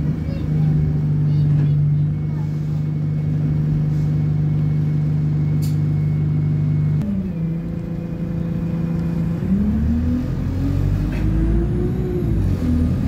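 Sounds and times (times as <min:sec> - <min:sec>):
bus diesel engine: 0:00.0 - 0:13.0
click: 0:05.6 - 0:05.8.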